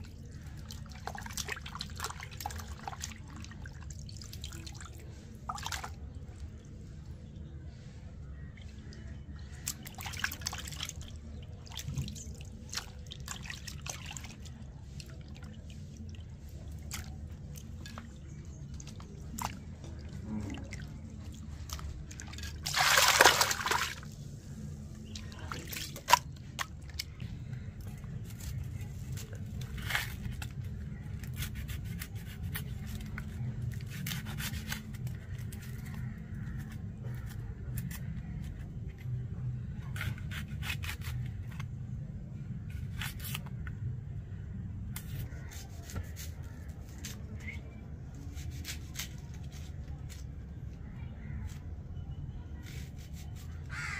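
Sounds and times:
liquid dripping and splashing: 16.8 - 24.1
liquid rushing: 22.6 - 24.0.

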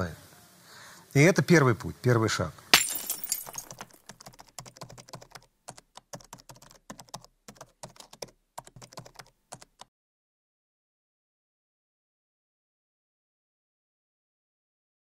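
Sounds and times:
keyboard typing: 3.7 - 9.9.

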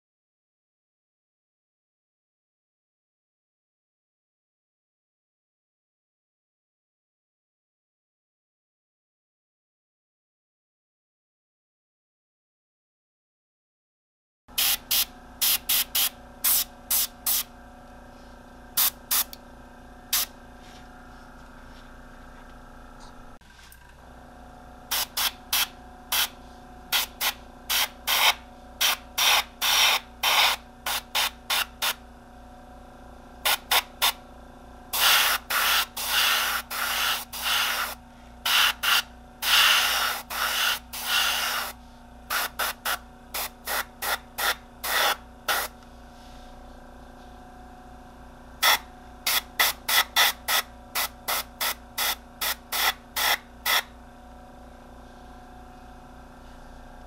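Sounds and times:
airbrush spraying hiss: 14.6 - 17.5, 18.8 - 19.4, 24.9 - 26.3, 26.9 - 32.0, 35.0 - 45.7.

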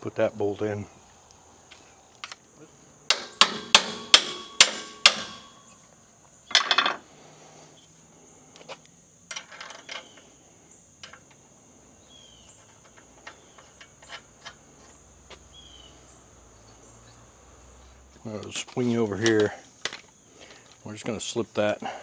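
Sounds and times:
high insect trill: 0.0 - 22.0
metallic clatter: 3.1 - 5.7
hammer blows on steel: 3.1 - 5.8
tools clinking: 3.1 - 5.8, 6.5 - 7.0.

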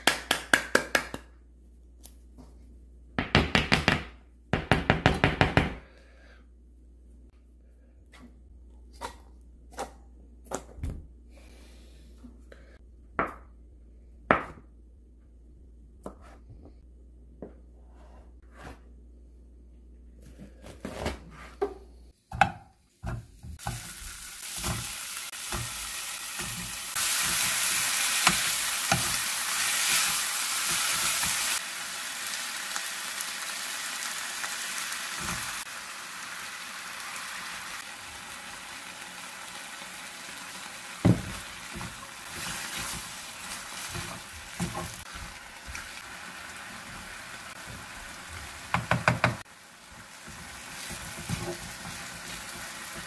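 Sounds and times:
food sizzling in a frying pan: 23.6 - 53.0.

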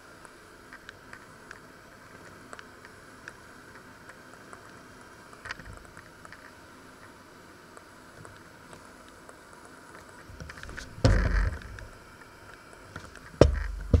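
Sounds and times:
faint steady hiss: 0.0 - 14.0
deep thumps: 10.8 - 11.9, 13.4 - 14.0.

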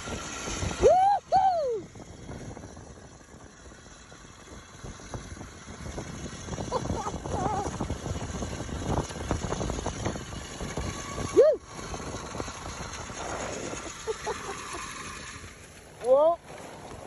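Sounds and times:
sled rattling: 0.0 - 17.0
sled runners scraping over snow: 5.0 - 17.0.

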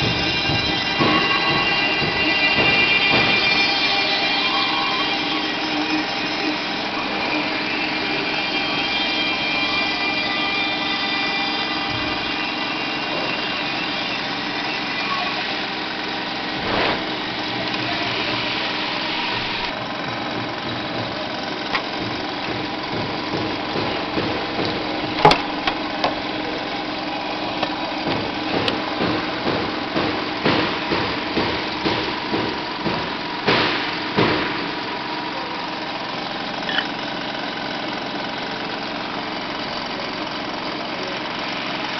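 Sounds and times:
router machine whine: 0.0 - 29.4
handling clicks and knocks: 20.0 - 26.3.

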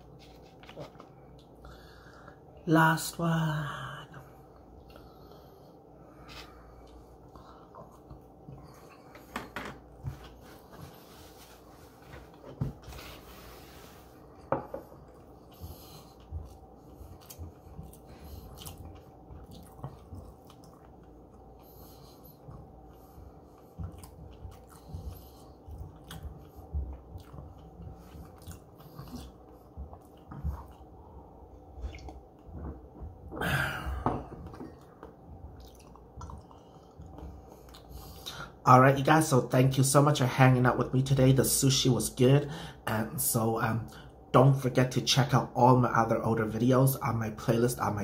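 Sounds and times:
person chewing food: 0.0 - 2.3, 4.4 - 38.6
mouth clicks and smacks: 31.8 - 32.5.

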